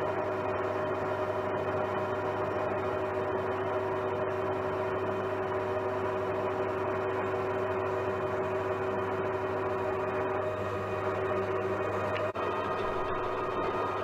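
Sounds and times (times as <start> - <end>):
metal lathe humming: 7.3 - 14.0.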